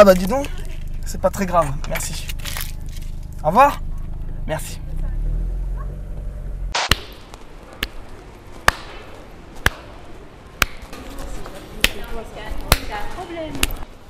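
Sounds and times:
faint crowd murmur: 7.5 - 14.0.

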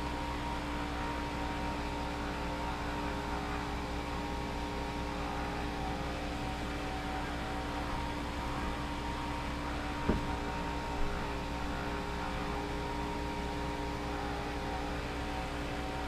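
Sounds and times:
steady machine hum: 0.0 - 16.0.

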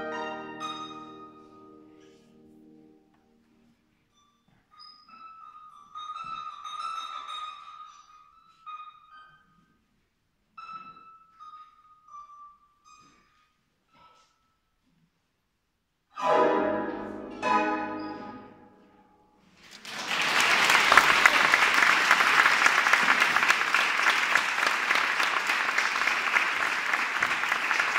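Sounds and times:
harp chords ringing: 16.2 - 18.7
audience applause: 19.7 - 27.9.

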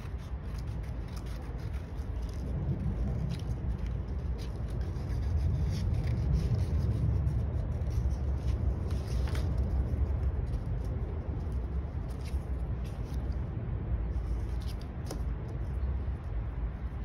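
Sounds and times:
art tool scratching on paper: 0.0 - 11.6
steady low rumble: 0.0 - 17.0.

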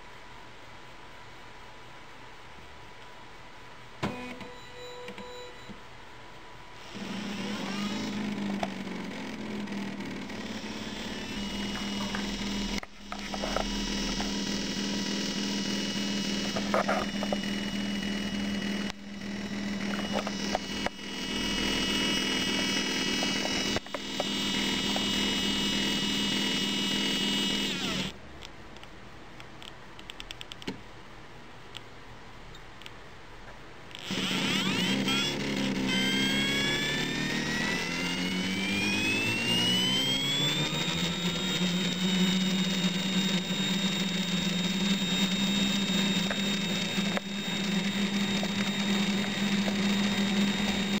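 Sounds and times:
electric motor whine: 6.8 - 28.2, 34.0 - 51.0
click: 28.4 - 30.8.

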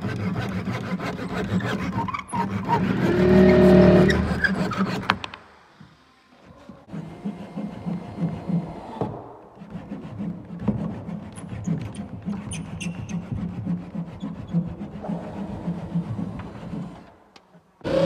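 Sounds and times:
hand saw cutting plywood: 0.0 - 5.2, 6.4 - 17.2.

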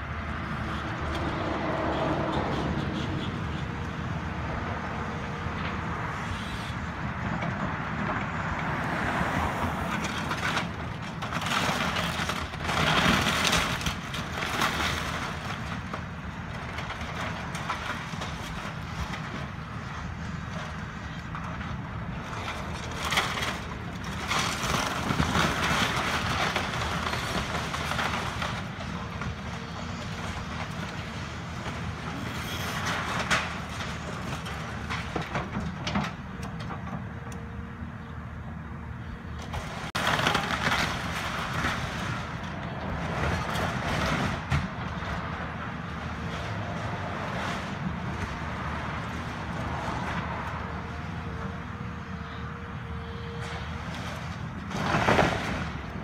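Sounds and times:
excavator diesel engine: 0.0 - 56.0
house cracking and crunching: 8.8 - 37.0, 39.4 - 46.5, 53.5 - 56.0.

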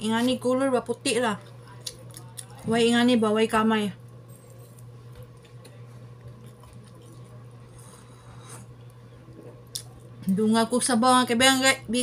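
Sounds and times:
steady low hum: 0.0 - 12.0
person chewing: 4.5 - 8.9
sip from a bowl: 7.8 - 8.8.

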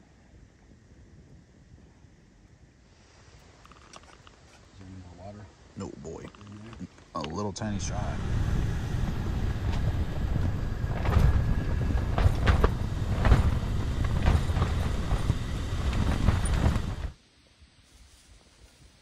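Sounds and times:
strong wind rumbling: 0.0 - 4.4, 7.4 - 17.2
tent fabric flapping: 8.4 - 17.2.

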